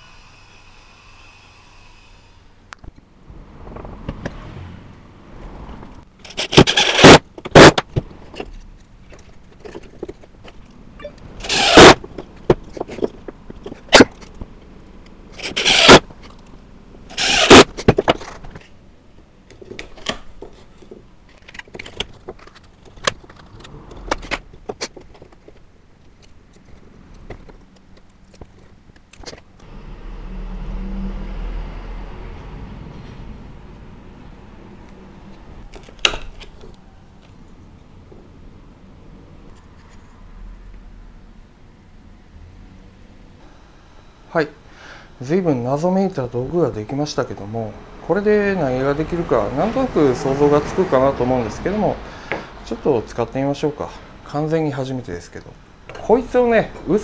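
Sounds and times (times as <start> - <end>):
screwdriver driving screws into wood: 6.2 - 7.8, 11.4 - 12.0, 15.4 - 16.0, 17.1 - 18.1.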